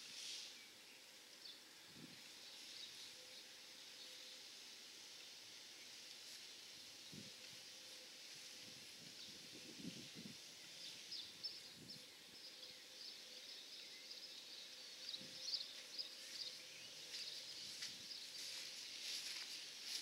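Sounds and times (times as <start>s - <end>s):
soft footsteps on grass: 15.2s - 20.0s.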